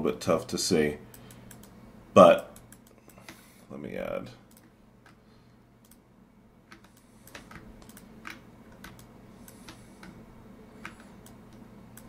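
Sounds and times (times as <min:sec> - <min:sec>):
faint low hum: 0:00.0 - 0:12.0
keyboard and mouse clicking: 0:01.1 - 0:01.8, 0:02.5 - 0:03.4, 0:06.7 - 0:10.2, 0:10.8 - 0:12.0.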